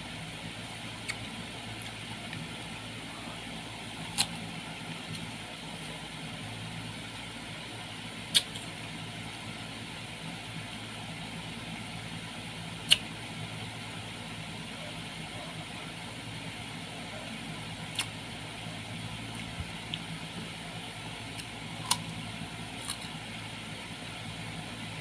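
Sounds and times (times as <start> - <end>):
steady low hum: 0.0 - 25.0
crunching bites into fruit: 4.0 - 5.3, 21.3 - 23.2.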